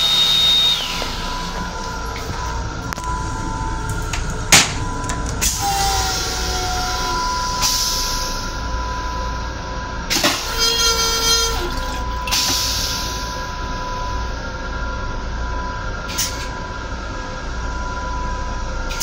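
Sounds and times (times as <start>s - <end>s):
railcar hum: 0.0s - 19.0s
rinse water rushing: 0.7s - 6.4s, 10.3s - 13.4s
toilet flushing: 10.1s - 13.7s.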